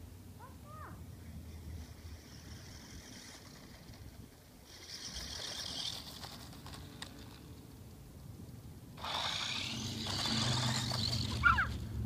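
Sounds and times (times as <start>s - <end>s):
toy car motor whirring: 1.1s - 7.6s, 9.0s - 11.9s.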